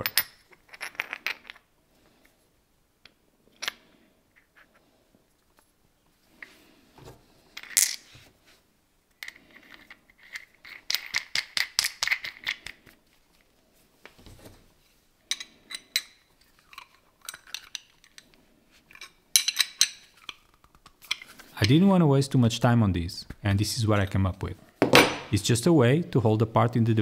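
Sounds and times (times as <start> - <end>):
metal parts clicking and clinking: 9.2 - 12.9, 15.3 - 18.3, 18.9 - 20.4.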